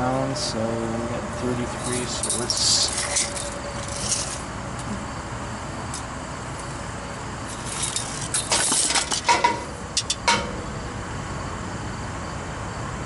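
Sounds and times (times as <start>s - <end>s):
metallic clicks and clinks: 1.7s - 4.5s.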